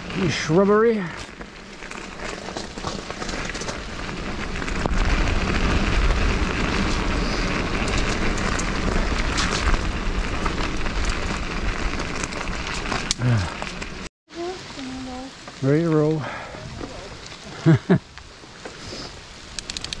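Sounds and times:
low rumble: 0.0s - 14.1s
bike tyres on wet gravel: 0.0s - 20.0s
bike clicks: 1.2s - 14.1s, 19.5s - 20.0s
wind buffeting microphone: 16.3s - 17.7s.

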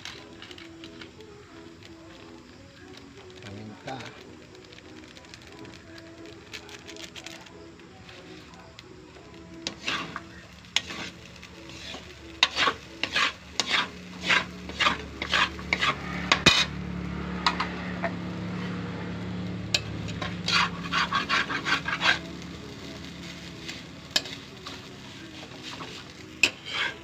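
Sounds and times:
light frying sizzle: 0.0s - 27.0s
spatula scraping metal wok: 9.2s - 27.0s.

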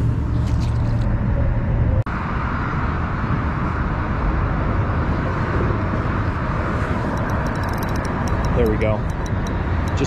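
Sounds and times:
wind buffeting microphone: 2.8s - 10.0s.

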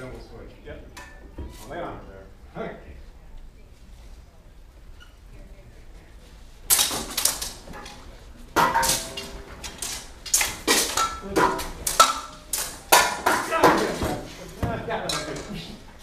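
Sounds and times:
steel swords clashing: 8.6s - 14.0s.

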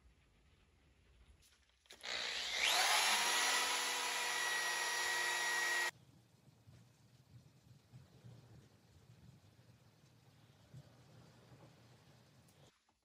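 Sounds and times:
electric drill whining: 1.9s - 5.9s.

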